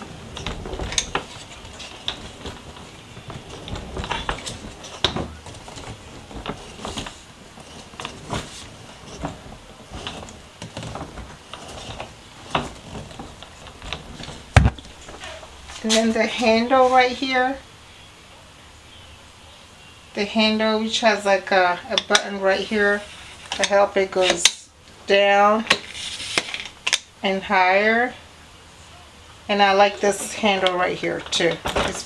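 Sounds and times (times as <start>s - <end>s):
suitcase wheels rolling on hard floor: 0.0s - 17.6s, 30.0s - 32.0s.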